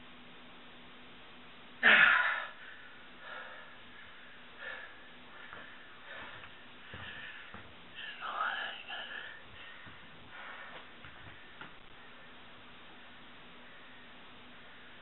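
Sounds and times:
man breathing heavily: 0:01.8 - 0:12.5.

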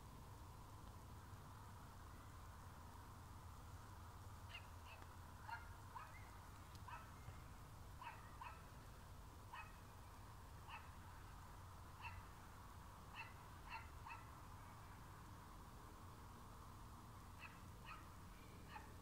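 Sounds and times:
low steady hum: 0:00.0 - 0:19.0
dog barking faintly: 0:04.5 - 0:07.2, 0:08.0 - 0:08.7, 0:09.5 - 0:09.8.

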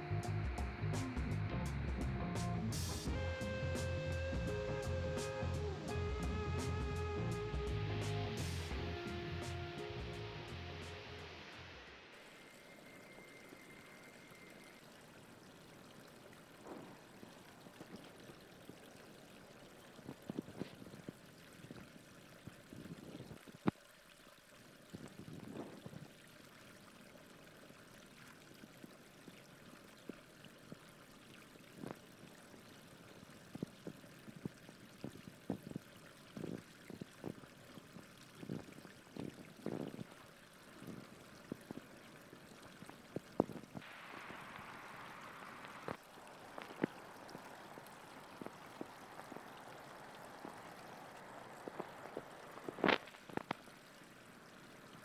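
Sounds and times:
hiss: 0:02.8 - 0:06.0, 0:43.8 - 0:46.0
water trickling: 0:02.8 - 0:55.0.

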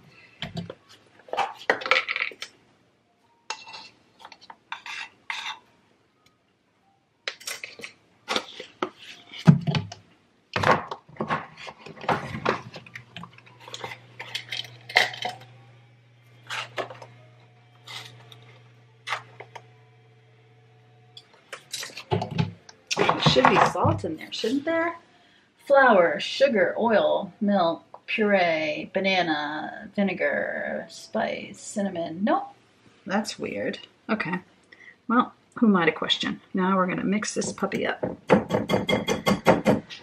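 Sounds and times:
steady low hum: 0:12.1 - 0:27.5.

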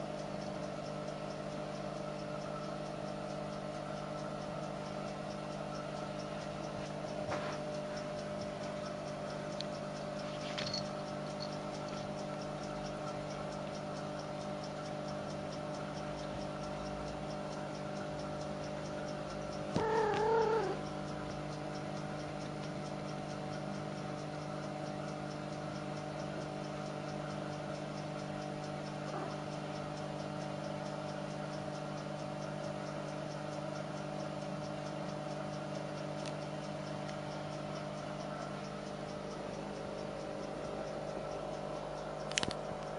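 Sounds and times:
steady multi-tone hum: 0:00.0 - 0:42.9
faint clicks: 0:15.3 - 0:21.0, 0:30.0 - 0:42.9
kitten meow: 0:19.8 - 0:20.8.

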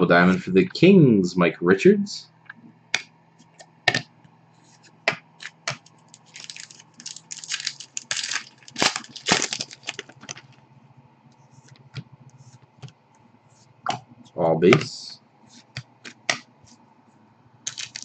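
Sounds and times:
faint low hum: 0:00.0 - 0:18.0
card pack wrapper crinkling: 0:05.4 - 0:10.6, 0:17.7 - 0:18.0.

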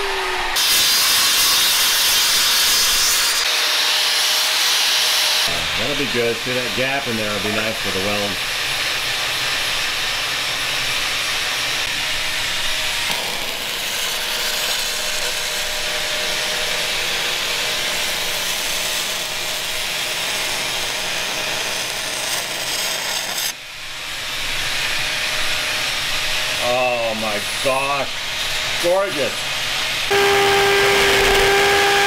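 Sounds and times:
welding arc hissing: 0:05.0 - 0:23.6.

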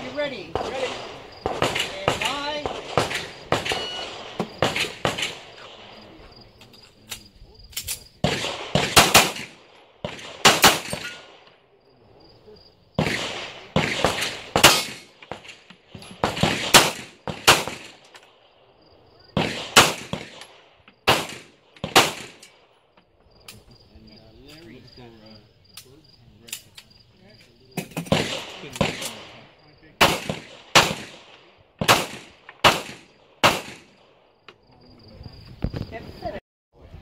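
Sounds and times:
insects buzzing: 0:00.0 - 0:09.4
handgun shots: 0:31.8 - 0:33.9.

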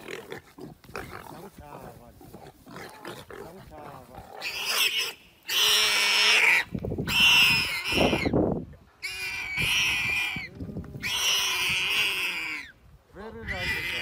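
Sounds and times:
harsh squealing snarls: 0:00.0 - 0:08.3, 0:09.0 - 0:12.7, 0:13.4 - 0:14.0.

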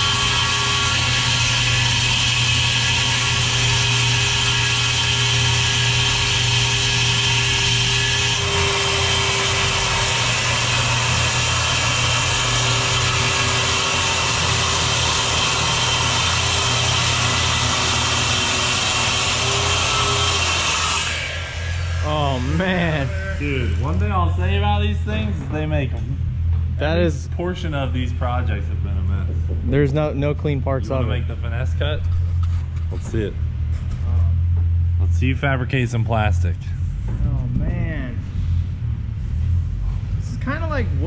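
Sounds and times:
circular saw cutting plastic: 0:00.0 - 0:24.2.

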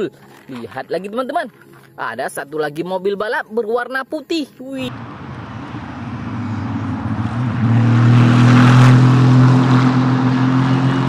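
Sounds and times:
race car engine approaching: 0:04.8 - 0:11.0.

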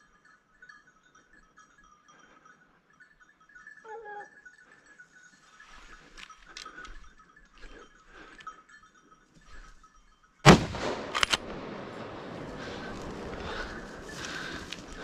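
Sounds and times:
rifle shot with echo: 0:10.4 - 0:13.8
sharp rifle clicks: 0:10.5 - 0:12.2.

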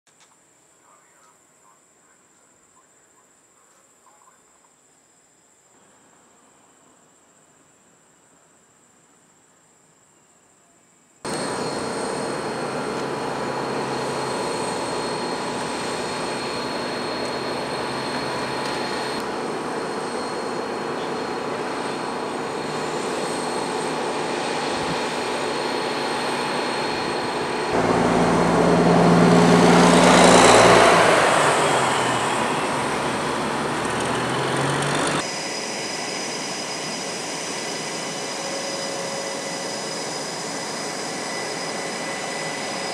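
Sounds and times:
jet engines running: 0:11.3 - 0:42.9.

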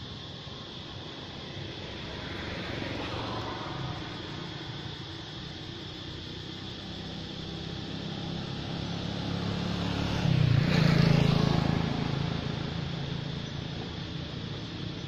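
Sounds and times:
motorbike engine passing: 0:06.9 - 0:14.6.

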